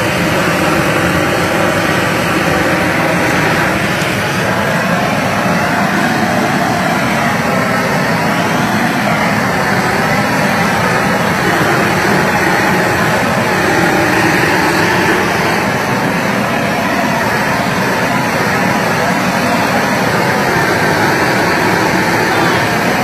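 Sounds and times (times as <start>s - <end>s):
propane torch flame roaring: 0.0s - 23.0s.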